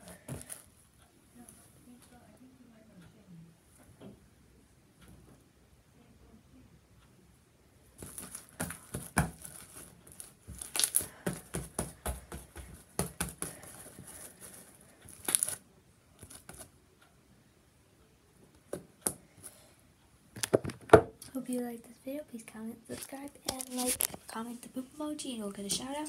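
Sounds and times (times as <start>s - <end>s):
slime crackling and popping: 8.0s - 11.3s, 15.1s - 15.6s.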